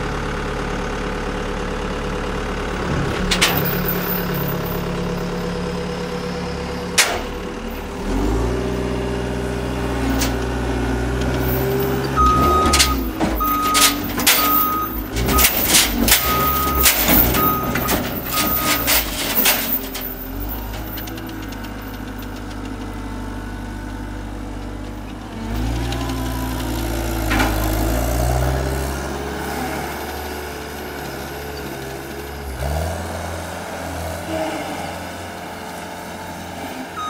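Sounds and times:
diesel engine running: 0:00.0 - 0:37.0
sharp metal clanks: 0:02.9 - 0:05.2, 0:07.0 - 0:07.9, 0:11.4 - 0:21.7
backup alarm beeping: 0:12.1 - 0:19.6.

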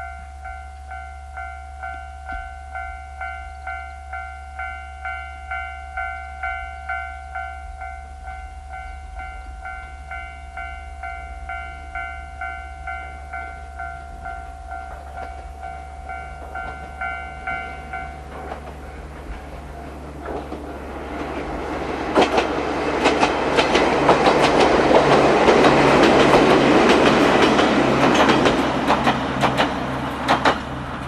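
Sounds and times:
level crossing bell ringing: 0:00.0 - 0:18.4
electric train approaching: 0:00.0 - 0:31.0
train wheels knocking on rails: 0:02.2 - 0:03.8, 0:13.9 - 0:31.0.

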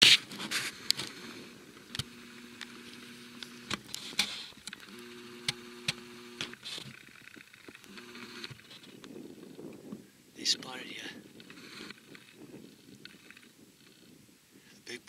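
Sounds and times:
zoom motor hum: 0:00.0 - 0:10.0, 0:11.2 - 0:14.2
sharp clicks: 0:01.8 - 0:09.2
wind on microphone: 0:08.5 - 0:15.0.

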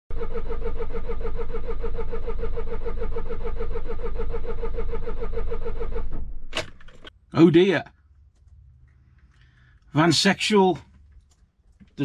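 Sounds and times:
starter motor cranking engine: 0:00.1 - 0:07.1.

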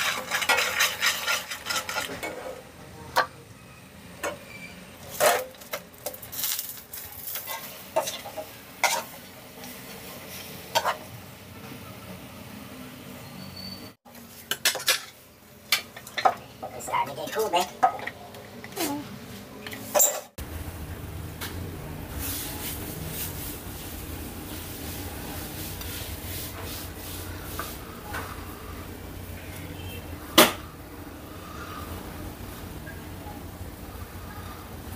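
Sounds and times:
sugar sizzling: 0:00.0 - 0:02.4, 0:04.4 - 0:10.8
metal spatula scraping a wok: 0:00.0 - 0:02.7, 0:04.3 - 0:11.1, 0:19.7 - 0:20.3.

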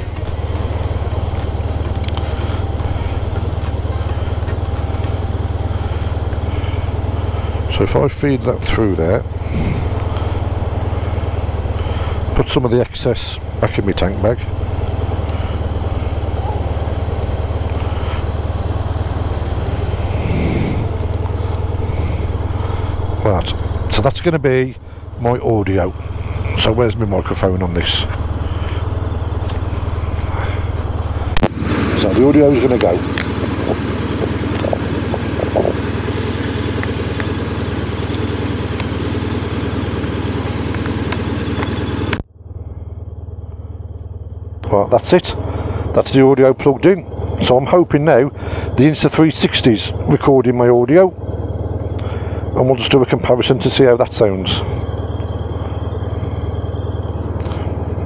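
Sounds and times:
motorcycle engine idling: 0:00.0 - 0:58.0.

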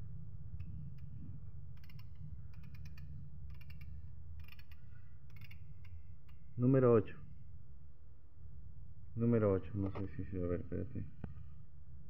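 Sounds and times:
steady low hum: 0:00.0 - 0:12.0
socket bit clicking in fingers: 0:01.8 - 0:06.4.

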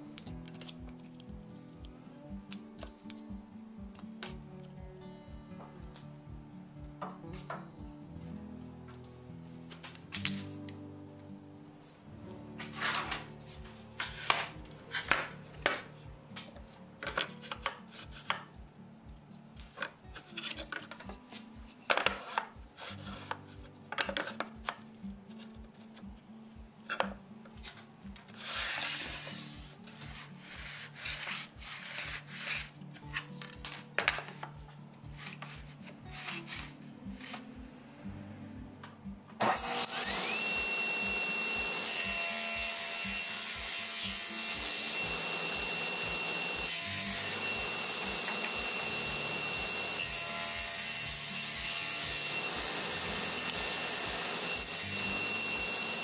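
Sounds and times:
wooden pieces clacking and rubbing: 0:14.0 - 0:18.5, 0:19.6 - 0:25.9, 0:29.9 - 0:34.6
table saw motor whine: 0:39.4 - 0:56.0.

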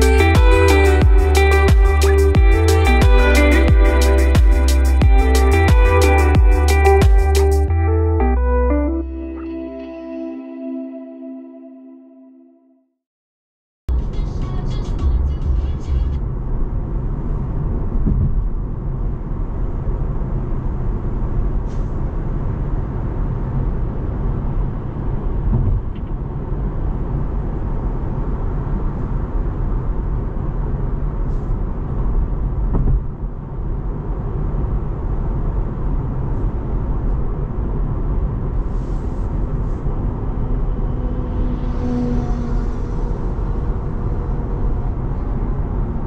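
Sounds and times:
road and tyre rumble: 0:13.9 - 0:46.0.

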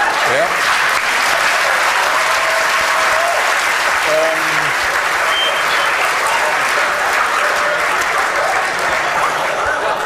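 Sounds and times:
audience applauding: 0:00.0 - 0:10.0
person's voice: 0:04.0 - 0:04.8.

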